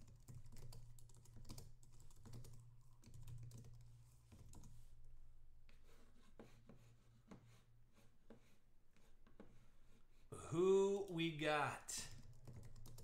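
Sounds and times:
typing on keyboard: 0:00.0 - 0:04.8, 0:12.1 - 0:13.0.

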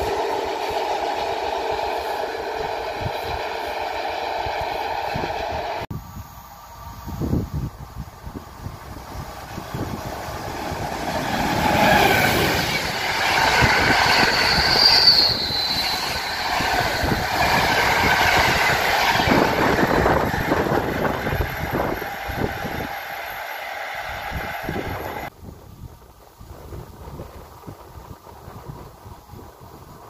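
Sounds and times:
train wheels rumbling on rail: 0:00.0 - 0:05.9, 0:06.6 - 0:30.0
wheel squeal: 0:09.6 - 0:25.3.

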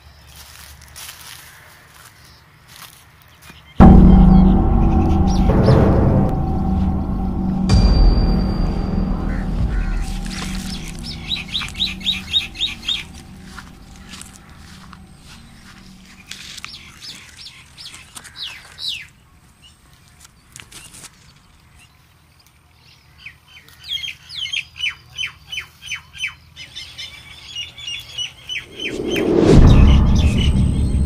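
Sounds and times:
loud low rumble: 0:03.8 - 0:16.3, 0:28.7 - 0:31.0.

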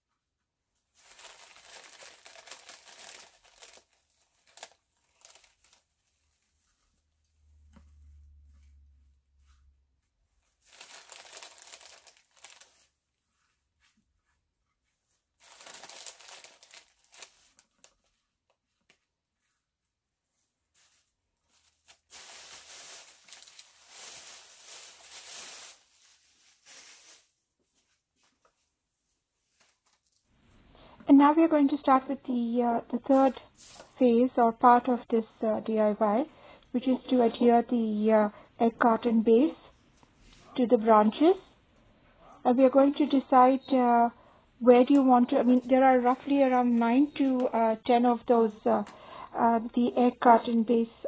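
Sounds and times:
plastic bag crinkling: 0:01.0 - 0:06.4, 0:10.6 - 0:13.0, 0:15.4 - 0:18.2, 0:20.8 - 0:27.4.

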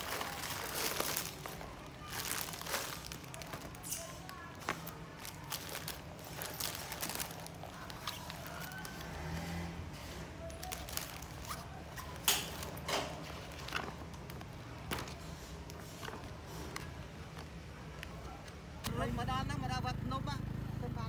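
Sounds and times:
plastic bag crinkling: 0:00.0 - 0:09.5, 0:10.4 - 0:17.4.

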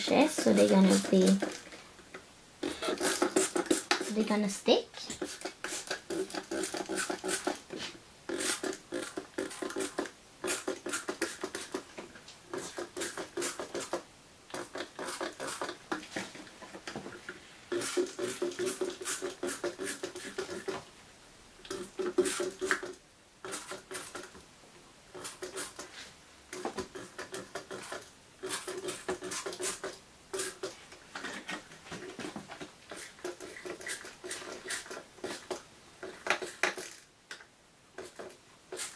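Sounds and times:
spray bottle spritzing: 0:02.6 - 0:04.2, 0:05.2 - 0:07.6, 0:38.0 - 0:38.9.

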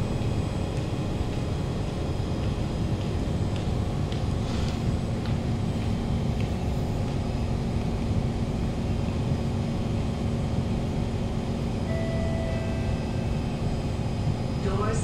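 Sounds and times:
low rumble with hum: 0:00.0 - 0:15.0
electronic beep: 0:11.9 - 0:13.0.

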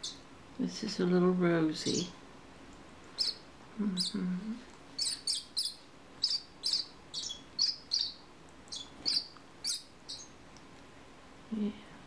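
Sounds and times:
parakeet chick chirping: 0:00.0 - 0:00.2, 0:03.1 - 0:04.2, 0:04.9 - 0:10.4.

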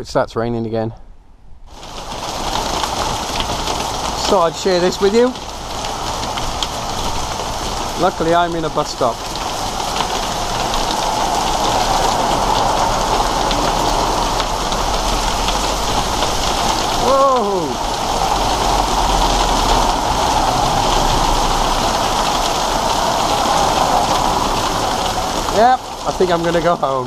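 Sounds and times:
hail and rain pelting down: 0:01.7 - 0:27.0.

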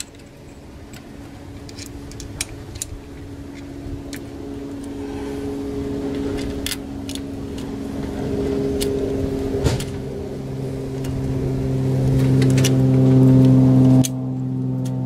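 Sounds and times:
motor humming: 0:00.0 - 0:15.0.

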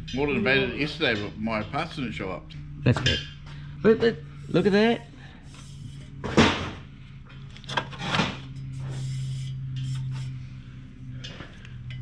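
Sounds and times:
steady low hum: 0:00.0 - 0:12.0
tools scraping and knocking: 0:05.5 - 0:10.4.

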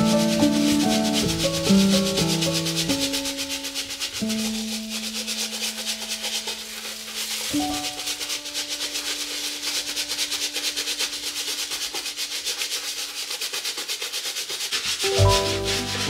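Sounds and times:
soft background music: 0:00.0 - 0:11.2, 0:15.0 - 0:16.0
bristle brush scrubbing sneaker: 0:00.0 - 0:16.0.

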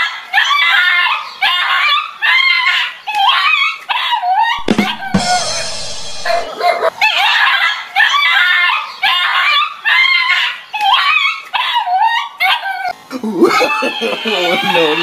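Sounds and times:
dog yelping and squealing: 0:00.4 - 0:05.1, 0:06.3 - 0:12.9.

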